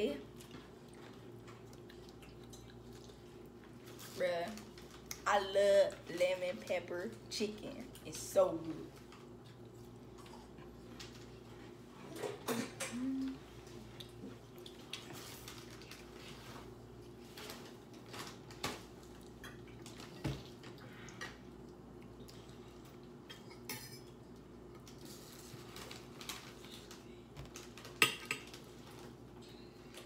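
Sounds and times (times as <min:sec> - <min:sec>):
cutlery clinking on plates: 0:23.3 - 0:24.1.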